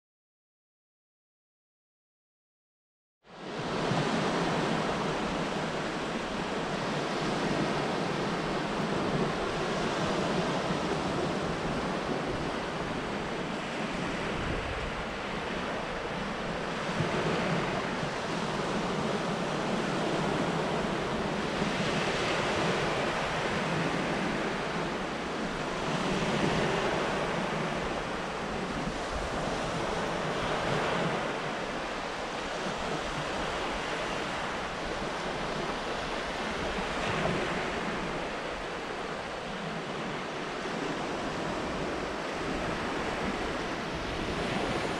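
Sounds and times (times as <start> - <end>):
small waves breaking on shore: 3.3 - 44.9
wind noise on microphone: 3.4 - 44.9.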